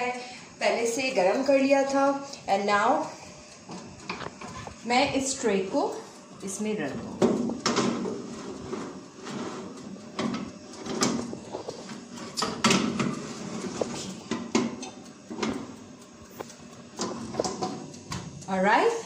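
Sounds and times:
metal tray scraping on oven rack: 0:06.9 - 0:15.8, 0:16.4 - 0:18.4.

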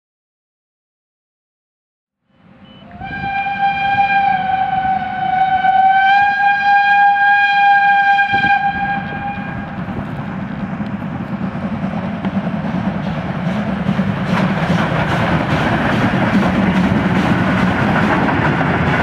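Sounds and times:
low rumble of locomotive: 0:02.2 - 0:19.0
steam locomotive whistle: 0:02.4 - 0:09.9.

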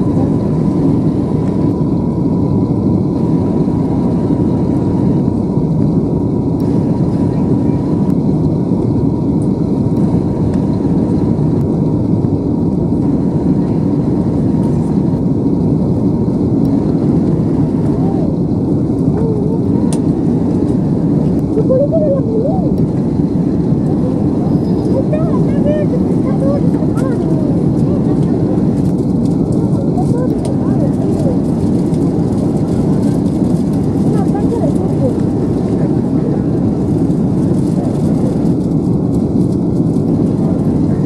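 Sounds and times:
airliner cabin engine roar: 0:00.0 - 0:41.0
faint steady whine: 0:00.0 - 0:41.0.

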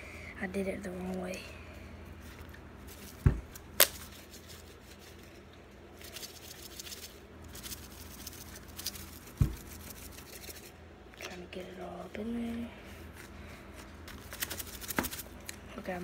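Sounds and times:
dull thump: 0:03.2 - 0:03.5, 0:09.4 - 0:09.7.

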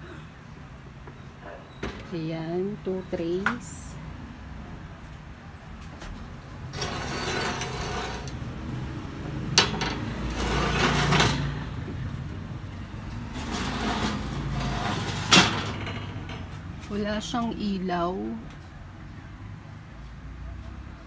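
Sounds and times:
wire oven racks scraping and rattling: 0:06.6 - 0:12.2, 0:12.8 - 0:17.4.

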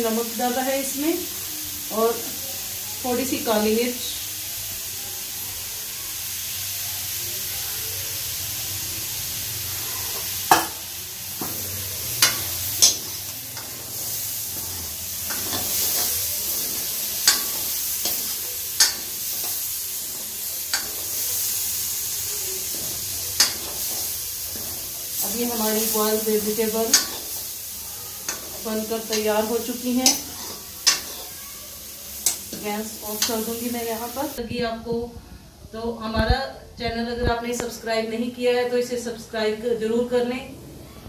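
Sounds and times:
vegetables sizzling in a pan: 0:00.0 - 0:34.4
metal spoon knocking on a pan: 0:10.5 - 0:10.8.

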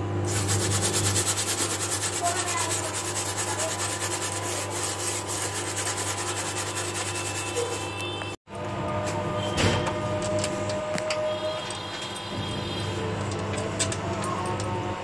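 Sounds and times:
scrubbing stove top by hand: 0:00.3 - 0:07.9.

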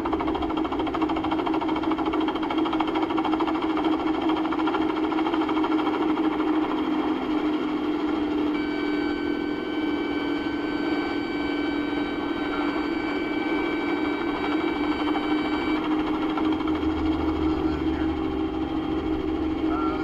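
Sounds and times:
helicopter engine and rotor drone: 0:00.0 - 0:20.0
warning horn steady high tone: 0:08.4 - 0:18.4.

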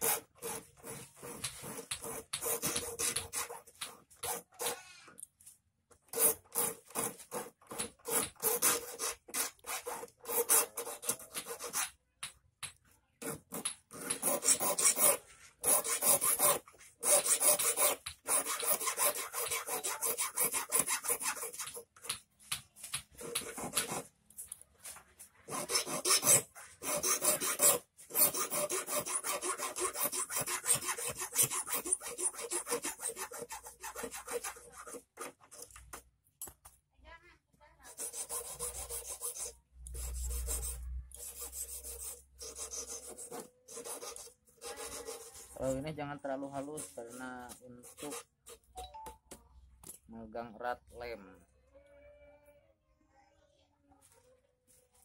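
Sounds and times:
hand file rasping on steel wire: 0:06.1 - 0:12.0, 0:13.2 - 0:22.2, 0:25.4 - 0:35.8, 0:37.8 - 0:45.8, 0:46.6 - 0:48.7.

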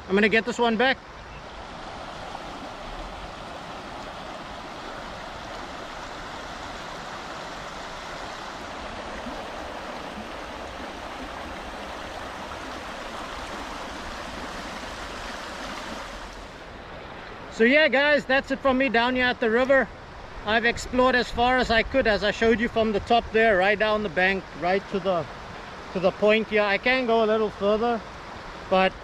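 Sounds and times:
river flowing over stones: 0:00.5 - 0:17.5.

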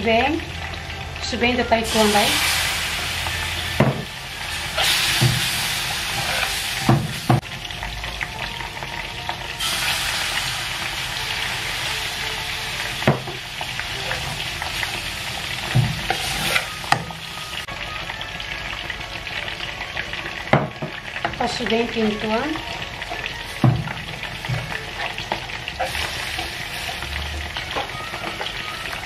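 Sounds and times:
roux sizzling in a frying pan: 0:00.0 - 0:29.0
metal spoon scraping pan: 0:06.1 - 0:06.6.

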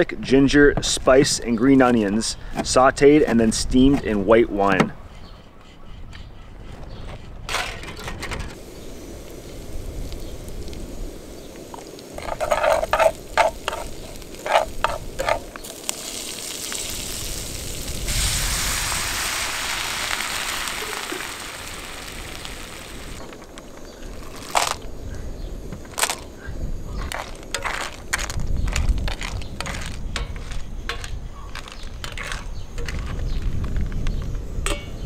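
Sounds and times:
vegetables sizzling in a frying pan: 0:08.6 - 0:23.2
spatula scraping a pan: 0:12.2 - 0:15.6, 0:27.1 - 0:33.2.

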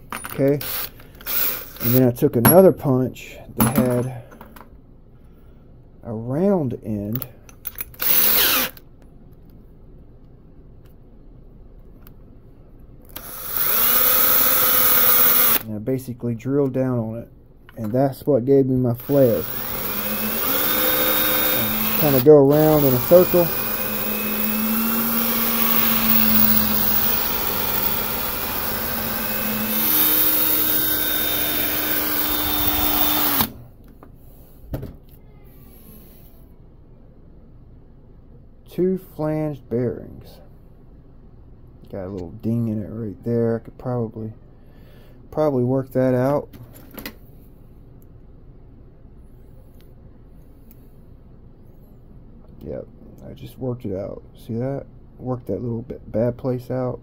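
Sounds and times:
electric drill whining: 0:00.6 - 0:02.0, 0:08.0 - 0:08.8, 0:13.2 - 0:15.6, 0:19.0 - 0:33.6.

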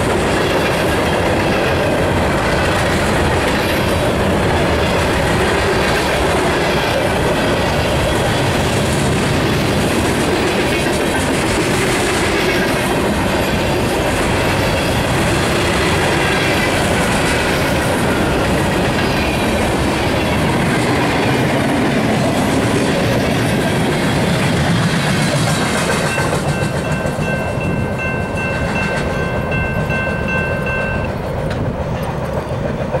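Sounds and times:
train wheels clickety-clack: 0:00.0 - 0:33.0
level-crossing warning bell: 0:13.2 - 0:20.5, 0:25.8 - 0:31.6.

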